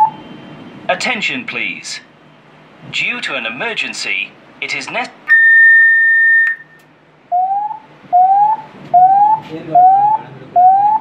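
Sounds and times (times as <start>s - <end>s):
steady high alarm beep: 5.3s - 6.8s, 7.4s - 11.0s
rising alarm tone: 5.3s - 11.0s.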